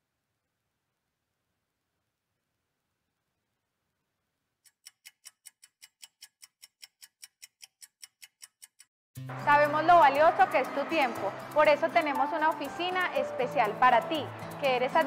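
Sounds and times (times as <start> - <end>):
clock ticking: 4.6 - 8.9, 10.0 - 13.7.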